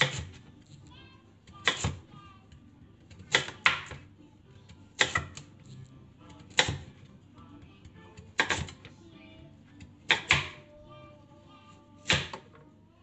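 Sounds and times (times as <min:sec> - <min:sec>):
knife chopping on wooden board: 0:00.0 - 0:00.4, 0:01.5 - 0:02.1, 0:03.0 - 0:04.0, 0:05.0 - 0:07.0, 0:08.1 - 0:08.9, 0:10.0 - 0:10.7, 0:12.0 - 0:12.6
faint music: 0:00.0 - 0:13.0.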